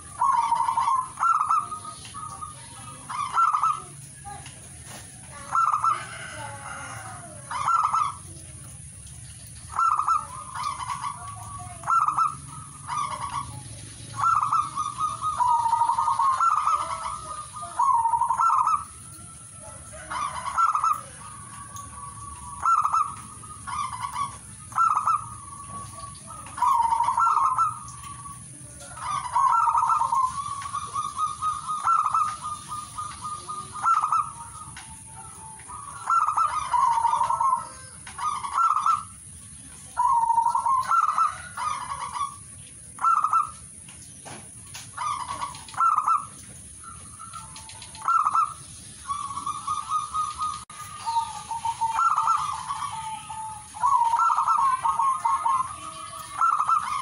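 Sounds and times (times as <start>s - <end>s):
dove cooing: 0.0s - 57.0s.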